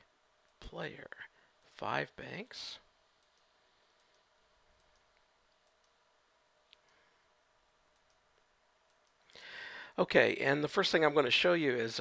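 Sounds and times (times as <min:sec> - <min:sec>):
computer mouse clicks: 0:03.2 - 0:06.0, 0:06.7 - 0:07.0, 0:07.9 - 0:09.3.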